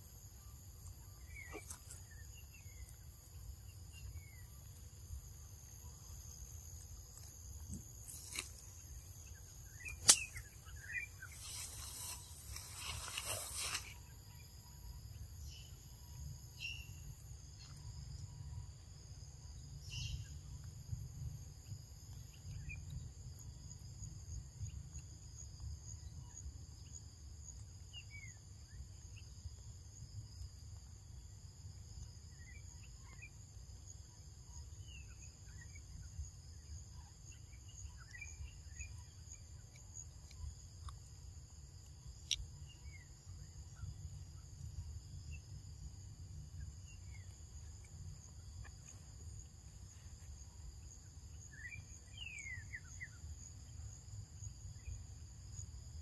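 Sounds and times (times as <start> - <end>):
insect chorus drone: 0.0 - 56.0
falling bird chirps: 8.1 - 14.4
sharp click: 9.8 - 10.5.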